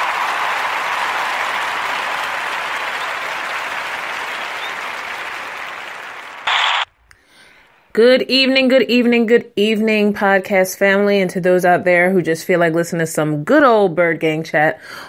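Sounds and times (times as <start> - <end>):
crowd applause: 0.0 - 6.9.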